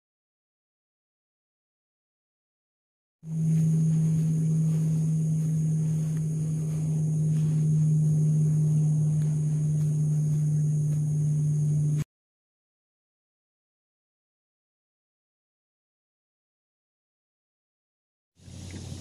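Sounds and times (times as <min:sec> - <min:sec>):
high-pitched buzz: 0:03.2 - 0:12.1
steady low hum: 0:03.2 - 0:12.1, 0:18.4 - 0:19.0.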